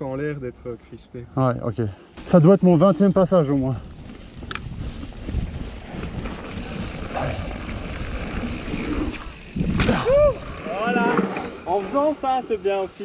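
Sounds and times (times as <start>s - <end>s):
bike tyre and trail rumble: 2.2s - 13.0s
wind on camera microphone: 3.7s - 10.7s.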